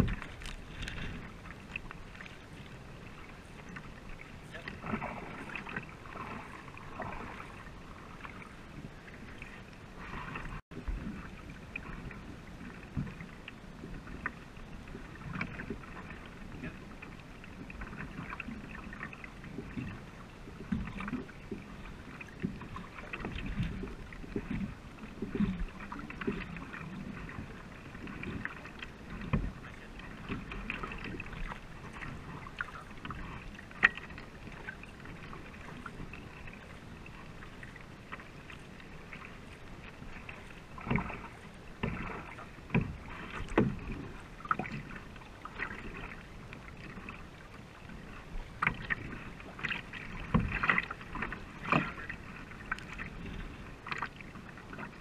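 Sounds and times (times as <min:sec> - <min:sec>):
paddle splashing through water: 0:00.0 - 0:55.0
water rushing along hull: 0:00.0 - 0:55.0.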